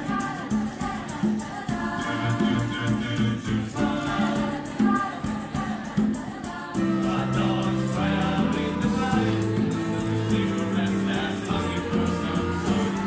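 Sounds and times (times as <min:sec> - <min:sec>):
mixed choir singing: 0:00.0 - 0:13.0
djembe drum beat: 0:06.8 - 0:13.0.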